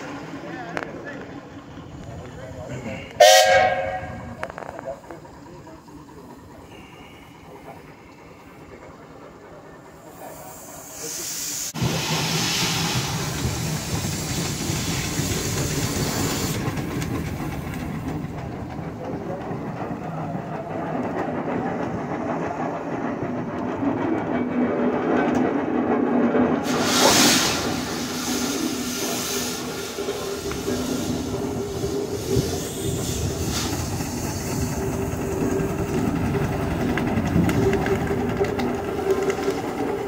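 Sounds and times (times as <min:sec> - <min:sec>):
steam hissing: 0:02.5 - 0:18.4, 0:26.6 - 0:36.9.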